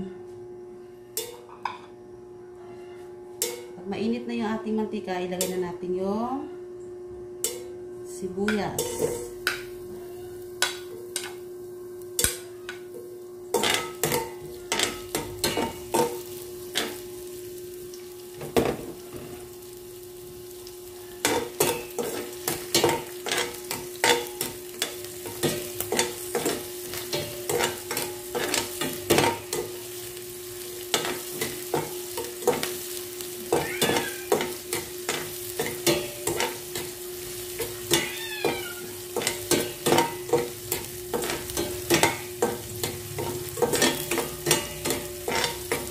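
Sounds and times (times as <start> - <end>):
onions sizzling in oil: 8.6 - 45.9
spatula scraping and tapping pan: 21.2 - 30.0, 30.8 - 45.9.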